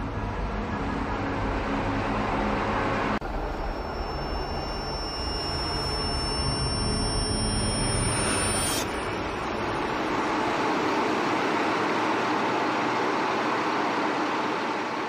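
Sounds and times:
high steady whining tones: 0.0s - 15.0s
low mechanical rumble: 0.0s - 15.0s.

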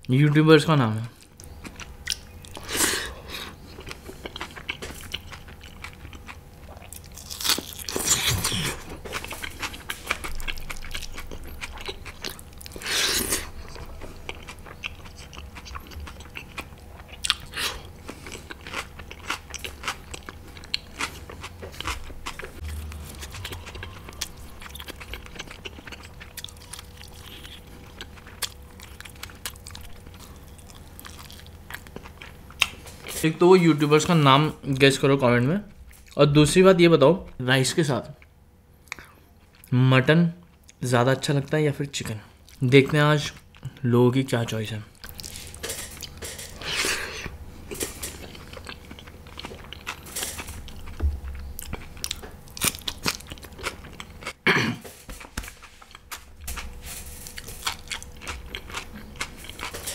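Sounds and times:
person chewing crunchy food: 1.2s - 33.2s, 44.9s - 59.9s.

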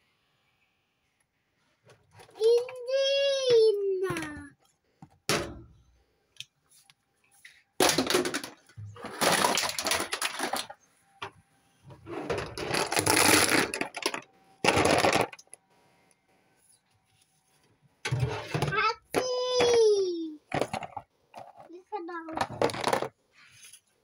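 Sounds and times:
plastic toy parts rattling: 7.8s - 10.8s, 12.2s - 15.5s, 18.6s - 23.2s.

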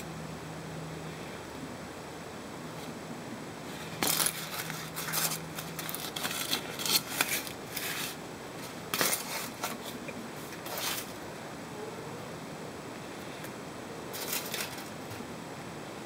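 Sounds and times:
cellophane and foil crinkling: 3.7s - 11.2s, 14.1s - 15.2s.

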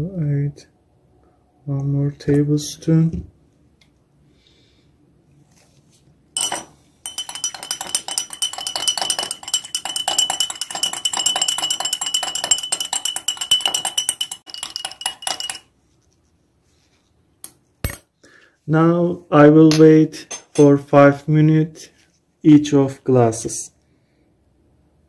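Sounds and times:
spoon set down on stone: 6.4s - 15.6s
glass ringing: 6.4s - 15.7s
spoon clinking in glass mug: 6.4s - 15.7s.

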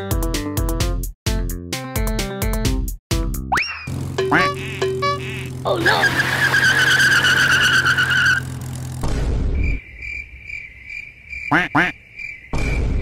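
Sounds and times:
wavering high squeal: 3.6s - 8.5s
low engine hum: 3.9s - 9.4s
tyre screech: 5.7s - 8.7s
dull crash thud: 8.9s - 9.8s, 12.5s - 13.0s.

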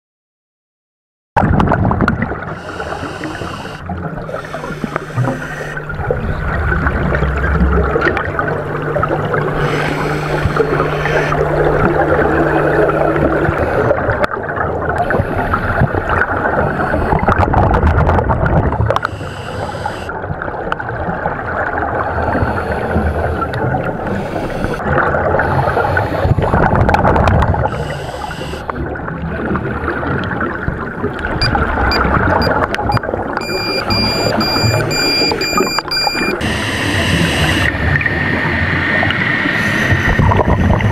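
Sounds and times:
scuba regulator and exhaust bubbles: 1.4s - 40.9s
steady high tone: 2.7s - 14.2s, 33.4s - 37.7s.

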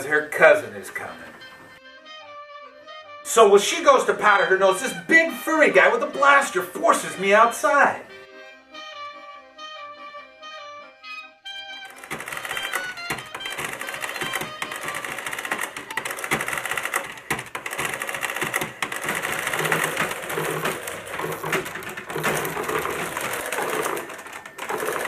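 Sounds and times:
adding machines clattering: 11.9s - 25.0s.

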